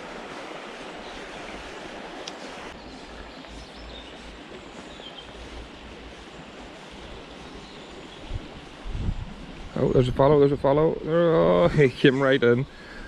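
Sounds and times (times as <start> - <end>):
river flowing over stones: 0.0 - 8.8.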